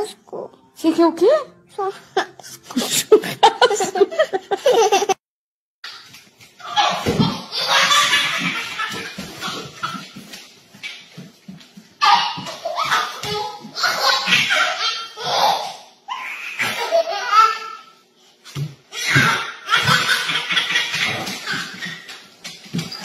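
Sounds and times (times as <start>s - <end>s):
baby laughing: 1.8s - 5.2s, 6.6s - 10.1s, 12.0s - 18.0s, 19.0s - 23.0s.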